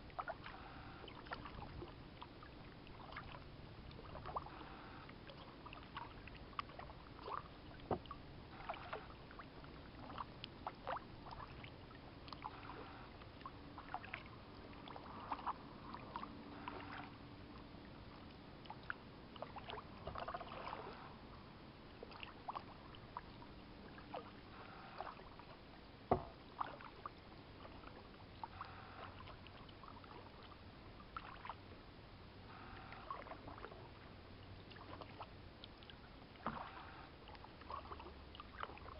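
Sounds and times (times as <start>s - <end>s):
paddle splashing water: 0.0s - 17.2s, 18.1s - 21.2s, 21.9s - 31.7s, 32.5s - 38.9s
paddle knocking on hull: 26.1s - 26.4s.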